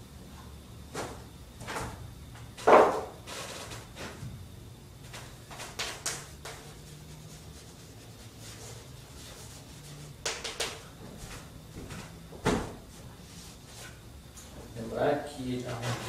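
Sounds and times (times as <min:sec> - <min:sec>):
low room hum: 0:00.0 - 0:16.0
chalk tapping on a blackboard: 0:05.5 - 0:10.8.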